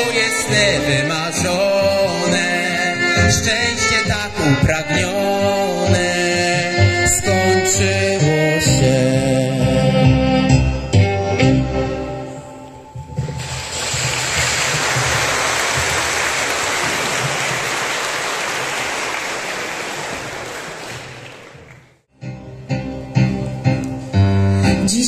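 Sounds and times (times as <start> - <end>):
song notes: 0.0 - 13.8, 22.2 - 25.0
audience applauding: 13.4 - 22.0
piano notes: 22.2 - 25.0.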